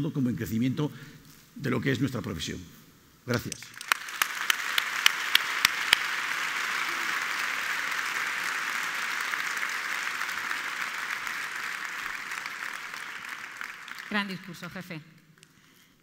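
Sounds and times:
sharp close claps: 3.3s - 14.6s
large audience applauding: 3.4s - 14.9s.

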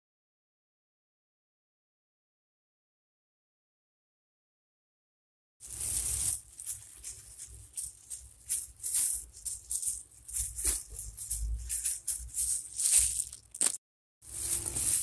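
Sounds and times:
plastic glove rustling: 5.6s - 15.0s.

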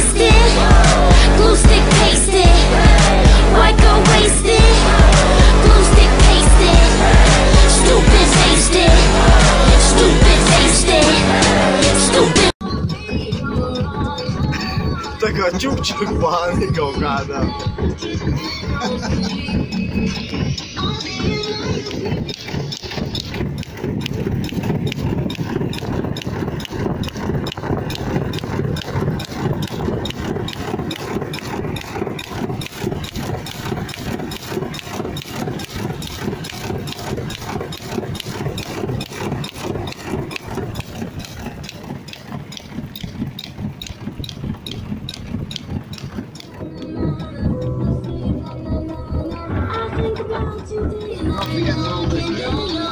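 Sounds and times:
car engine: 0.0s - 12.6s, 13.5s - 52.9s
steady clicking: 0.0s - 52.9s
tyre noise: 0.0s - 52.9s
wind on microphone: 12.6s - 52.9s.

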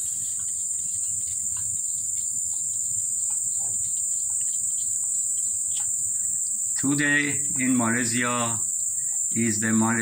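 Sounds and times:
cat lapping water: 0.0s - 6.4s
high-pitched insect chorus: 0.0s - 10.0s.

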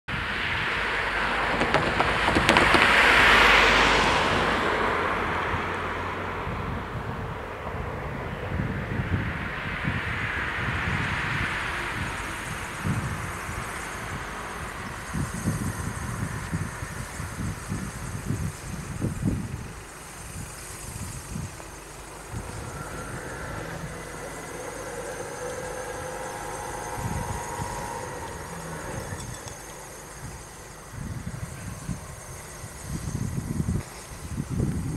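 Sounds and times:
vehicles driving past: 0.1s - 34.9s
cars idling: 0.7s - 34.9s
wheels knocking over rails: 1.4s - 3.5s
level crossing warning tones: 21.5s - 32.6s.

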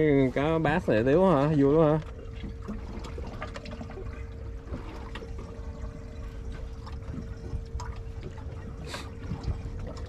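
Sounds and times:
faint steady hum: 0.0s - 10.0s
water lapping against boat hull: 0.0s - 10.0s.

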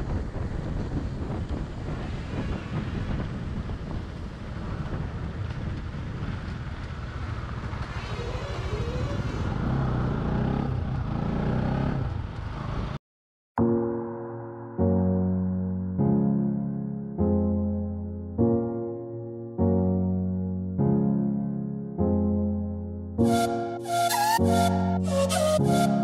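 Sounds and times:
wind buffeting microphone: 0.0s - 11.1s
motorcycle engine running: 3.6s - 13.0s
gentle piano music: 13.6s - 26.0s.

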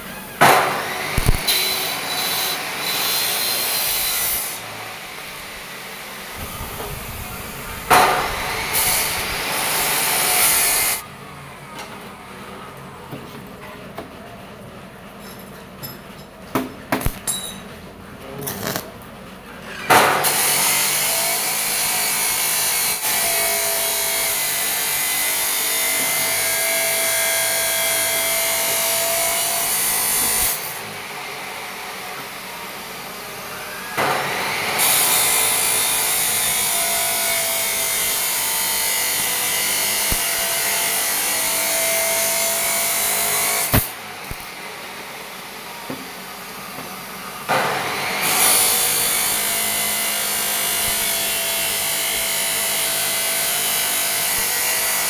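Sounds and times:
welding tack strikes: 0.4s - 4.6s, 7.8s - 11.0s, 17.0s - 17.4s, 18.5s - 18.9s, 34.0s - 44.5s, 47.5s - 52.2s
arc welding crackle: 0.7s - 4.6s, 18.5s - 18.9s, 34.8s - 44.5s, 48.3s - 55.0s.

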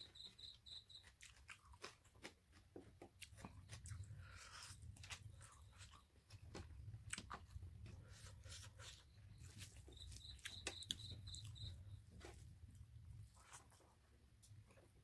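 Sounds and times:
faint low hum: 0.0s - 15.0s
high chirps: 9.4s - 12.0s.

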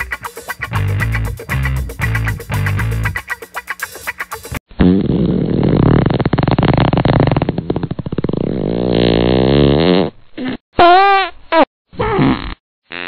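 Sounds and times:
fart sound effect: 4.7s - 11.2s, 12.0s - 13.0s.

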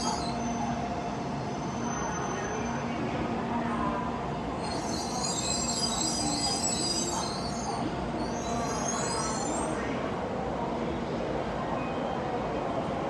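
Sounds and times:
train wheels squealing: 0.0s - 3.0s, 4.5s - 10.0s
train low rumble: 0.0s - 13.0s.

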